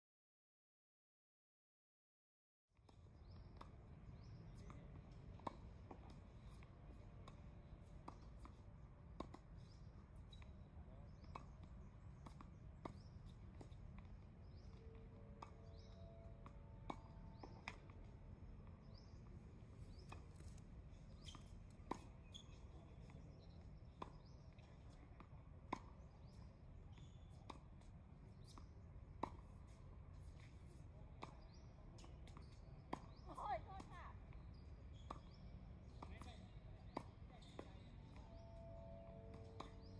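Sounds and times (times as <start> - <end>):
tennis ball bouncing: 11.1 - 14.8, 15.4 - 18.1, 19.9 - 23.2, 25.7 - 26.4, 28.4 - 30.6, 31.2 - 38.4, 39.2 - 39.9.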